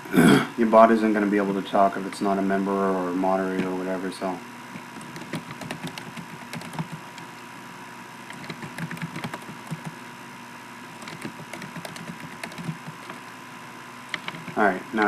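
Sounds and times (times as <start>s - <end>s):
keyboard typing: 4.7s - 7.3s, 8.2s - 10.0s, 10.9s - 13.2s, 14.1s - 14.6s.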